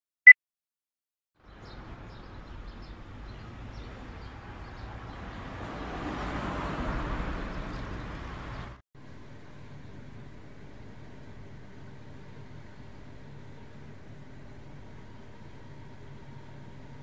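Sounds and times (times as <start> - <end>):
traffic noise: 1.4 - 17.0
vehicle passing: 1.9 - 8.8.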